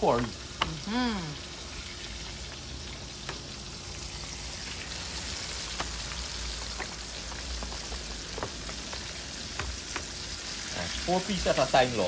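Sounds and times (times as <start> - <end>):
fish deep-frying in oil: 0.0 - 12.0
oil crackling and popping: 0.0 - 12.0.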